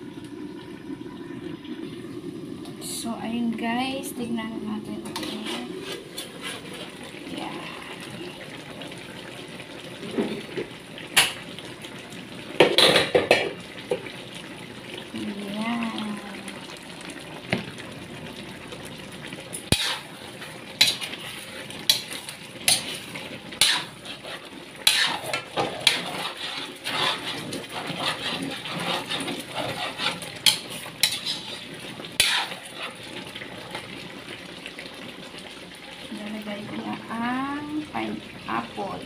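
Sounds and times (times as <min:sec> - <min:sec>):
metal ladle scraping a wok: 0:05.0 - 0:06.9, 0:19.7 - 0:20.1, 0:20.8 - 0:33.0
simmering sauce hissing: 0:13.4 - 0:39.0.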